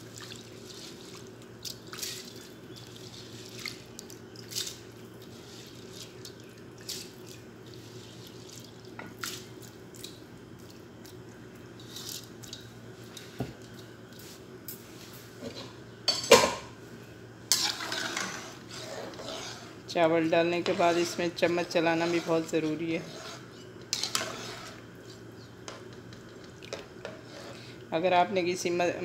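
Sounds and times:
drips and small splashes: 0:00.0 - 0:04.8, 0:05.9 - 0:11.2
steady low hum: 0:00.0 - 0:29.0.

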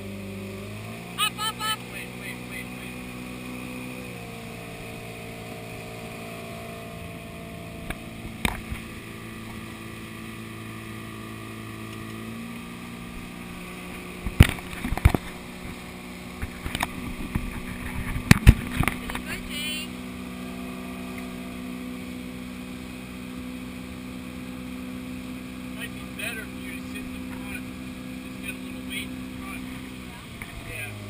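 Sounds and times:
boat engine running: 0:00.0 - 0:31.0
water wash: 0:00.0 - 0:31.0
camera knocks and rattles: 0:14.2 - 0:15.8, 0:16.4 - 0:19.2.

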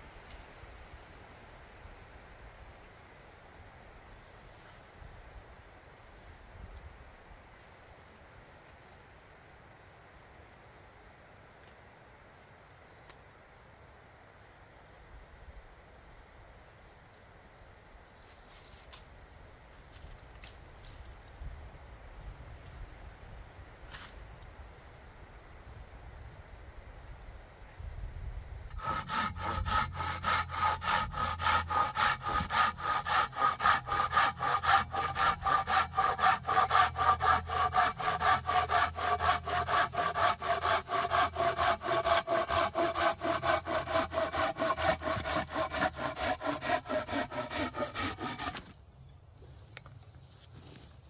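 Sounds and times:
hand saw cutting log: 0:28.7 - 0:48.8.

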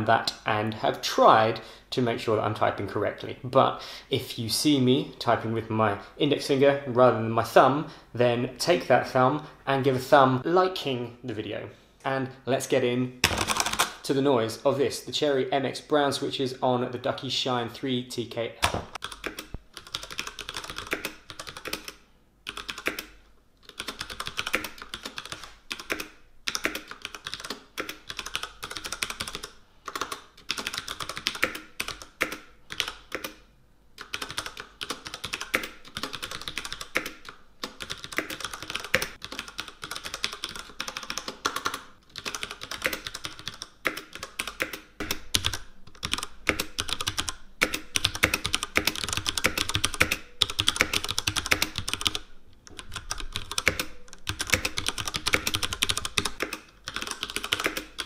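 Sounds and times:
mechanical keyboard typing: 0:13.2 - 0:14.0, 0:18.7 - 0:33.4, 0:34.0 - 0:58.0.

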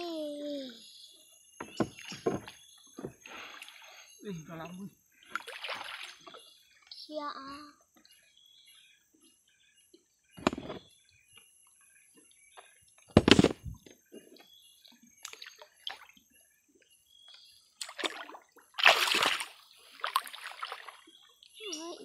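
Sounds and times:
footsteps splashing in shallow water: 0:05.4 - 0:06.3, 0:17.8 - 0:21.0.

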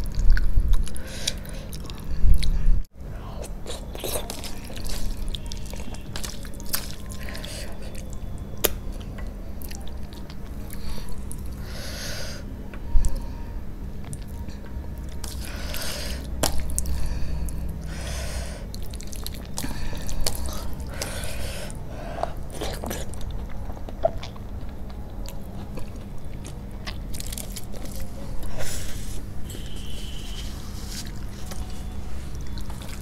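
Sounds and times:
chewing food: 0:03.4 - 0:11.6, 0:18.7 - 0:21.4, 0:22.2 - 0:28.7, 0:29.5 - 0:33.0.

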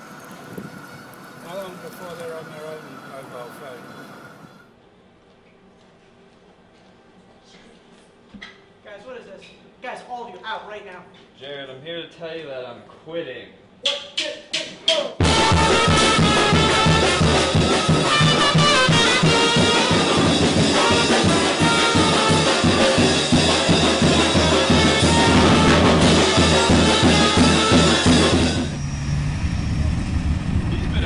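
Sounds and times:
brass band playing: 0:15.2 - 0:28.8.

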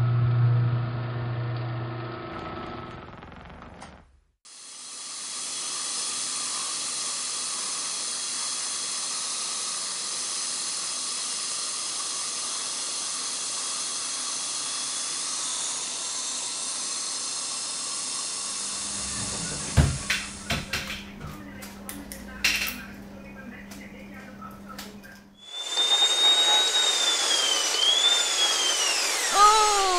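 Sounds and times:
dental drill whining: 0:04.5 - 0:20.2, 0:25.4 - 0:29.9.

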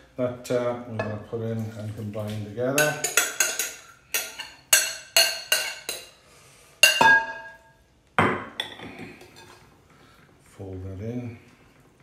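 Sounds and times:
ringing glass clink: 0:06.9 - 0:07.7.

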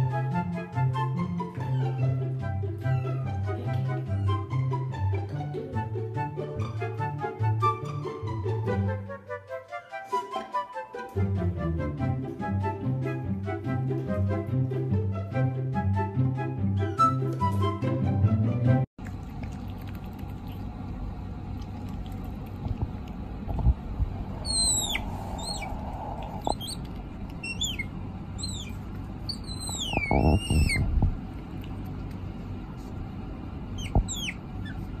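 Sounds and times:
otter squeaking: 0:23.6 - 0:31.2, 0:33.7 - 0:35.0.

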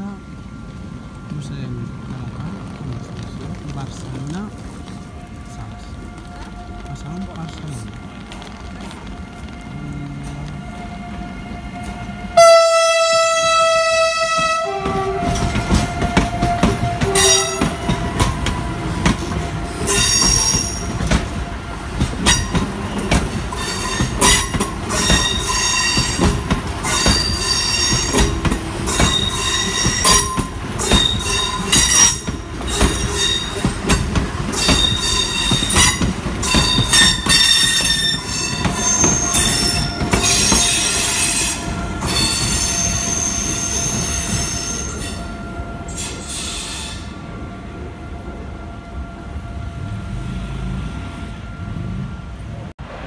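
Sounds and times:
train horn blast: 0:09.7 - 0:18.4
wheels clicking on rails: 0:14.3 - 0:45.1.

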